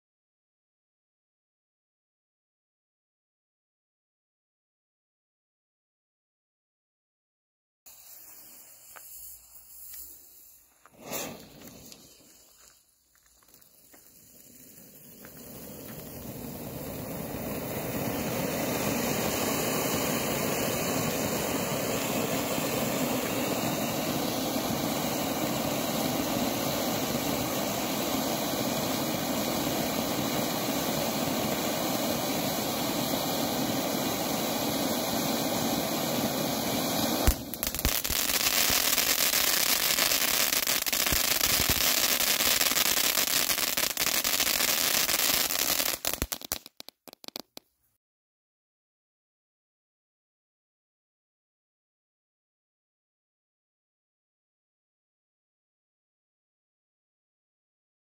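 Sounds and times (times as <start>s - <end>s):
fountain firework hissing: 7.9s - 47.5s.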